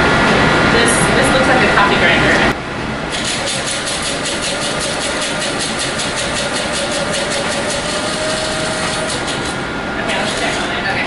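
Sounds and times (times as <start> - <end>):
spice grinder motor whining: 3.1 - 10.7.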